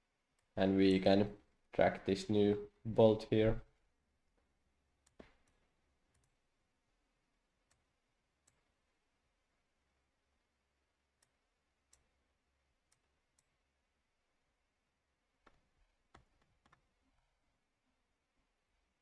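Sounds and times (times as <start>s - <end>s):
computer mouse clicks: 5.0s - 6.4s, 7.6s - 8.7s, 15.4s - 16.9s.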